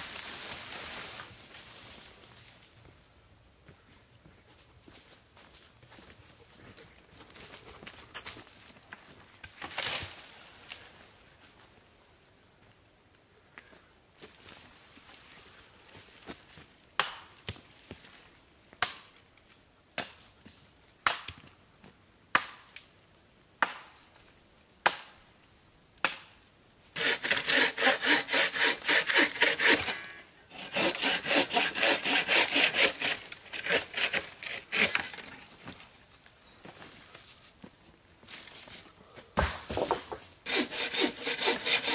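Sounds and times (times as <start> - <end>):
hand saw cutting wood: 27.0 - 35.5, 40.4 - 41.9
axe chopping wood: 39.4 - 40.2.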